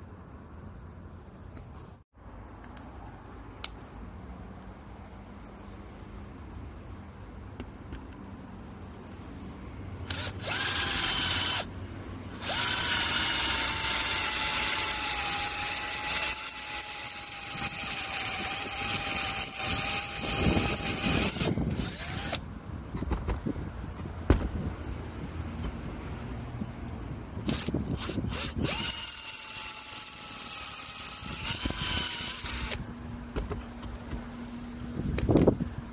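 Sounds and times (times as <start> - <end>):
cordless drill motor whirring: 10.0 - 11.7, 12.3 - 22.4, 27.5 - 32.8.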